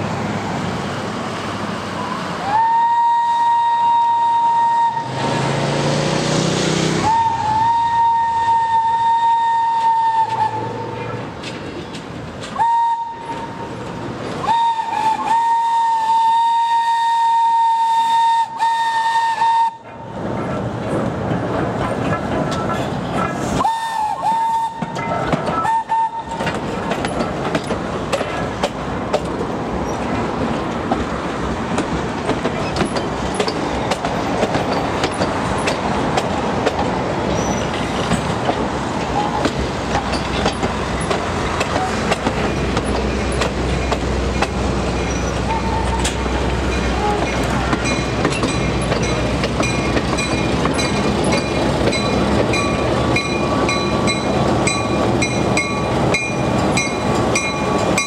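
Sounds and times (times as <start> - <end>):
rumble of wheels on rail: 0.0 - 58.0
wheels clicking over rail joints: 9.2 - 15.4, 19.8 - 58.0
high wheel squeals: 37.3 - 37.8, 45.0 - 58.0.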